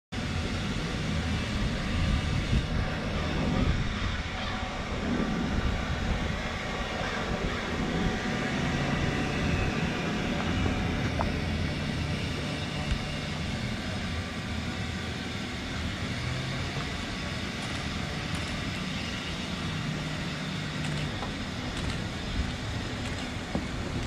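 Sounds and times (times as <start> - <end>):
boat engines rumbling: 0.2 - 24.0.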